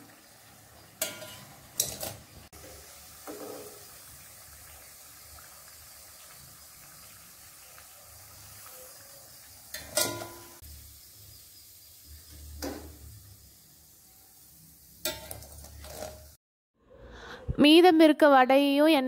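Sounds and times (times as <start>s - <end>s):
hot oil sizzling: 0.0s - 16.4s
metal skimmer clinking on pan: 1.0s - 2.2s, 9.7s - 10.6s.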